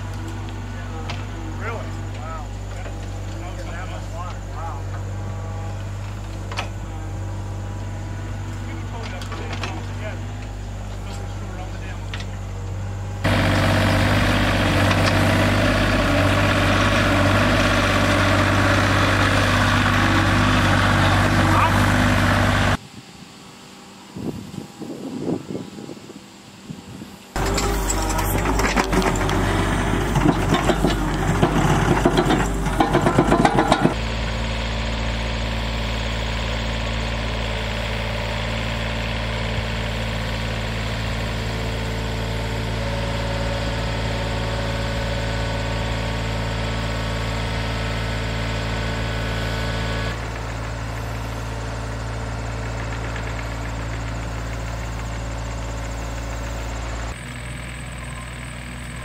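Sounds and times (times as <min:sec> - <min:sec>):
diesel engine running: 0:00.0 - 0:22.8, 0:27.3 - 0:59.0
clattering and scraping: 0:27.4 - 0:34.0.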